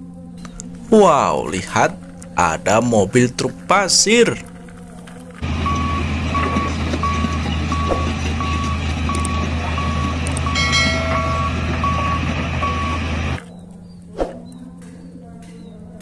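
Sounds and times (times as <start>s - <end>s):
backup alarm beeping: 5.4s - 13.4s
diesel truck engine running: 5.4s - 13.4s.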